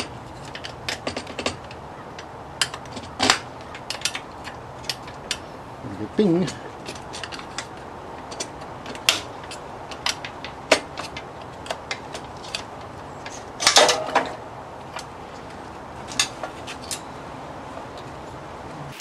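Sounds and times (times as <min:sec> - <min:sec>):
clatter of metal: 0:00.0 - 0:05.5, 0:06.4 - 0:14.4.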